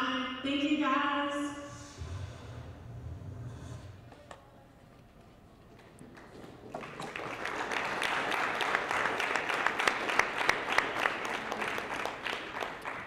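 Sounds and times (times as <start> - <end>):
audience applauding: 5.8 - 13.0.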